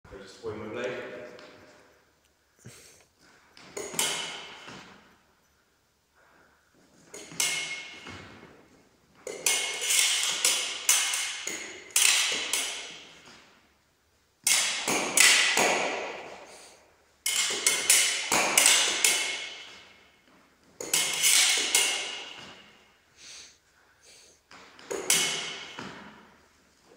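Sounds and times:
steel foil blades clashing: 0:07.2 - 0:08.1, 0:09.3 - 0:13.2, 0:14.4 - 0:16.3, 0:17.2 - 0:20.0, 0:20.8 - 0:22.7, 0:24.9 - 0:25.8.

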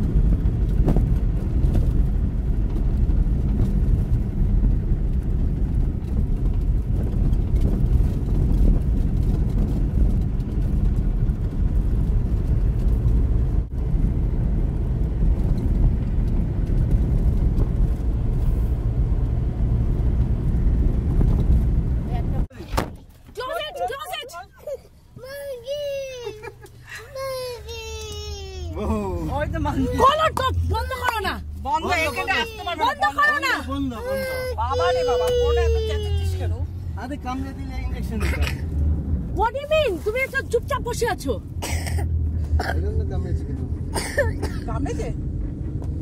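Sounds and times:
car engine and road rumble: 0:00.0 - 0:46.0.

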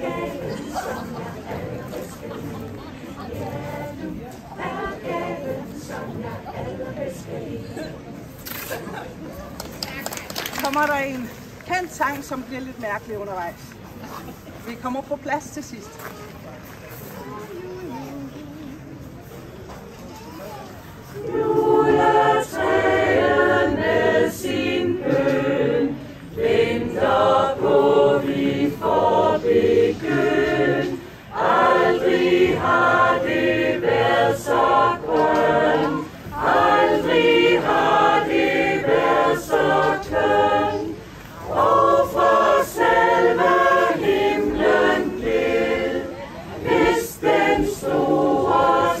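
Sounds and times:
mixed choir singing a cappella: 0:00.0 - 0:09.0, 0:21.0 - 0:49.0.

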